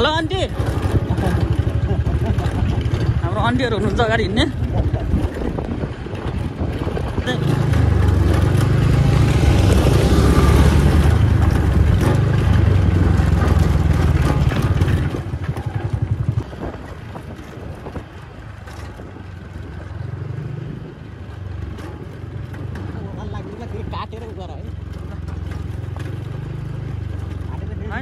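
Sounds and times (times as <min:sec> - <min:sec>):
scooter engine running: 0:00.0 - 0:28.0
wind and road noise: 0:00.0 - 0:28.0.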